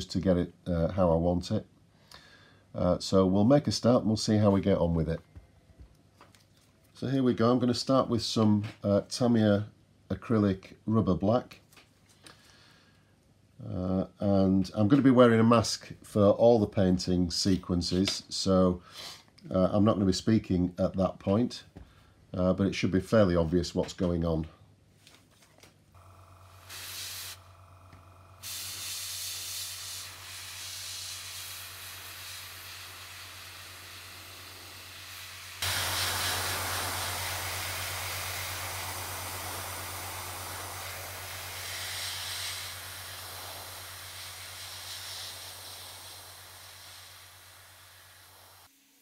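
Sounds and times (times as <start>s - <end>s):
steady low hum: 25.9s - 48.7s
airbrush spraying hiss: 26.6s - 27.6s, 28.4s - 49.0s.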